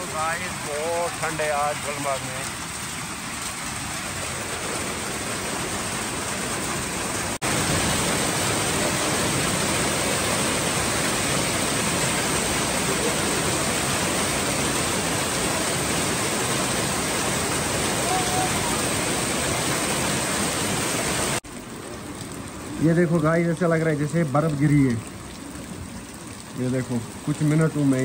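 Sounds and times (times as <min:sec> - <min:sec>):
heavy rain and hail falling: 0:00.0 - 0:28.0.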